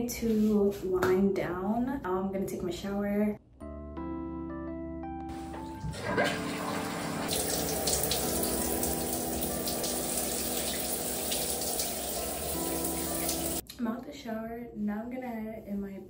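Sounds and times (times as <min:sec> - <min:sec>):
shower water spraying: 0:05.3 - 0:13.6.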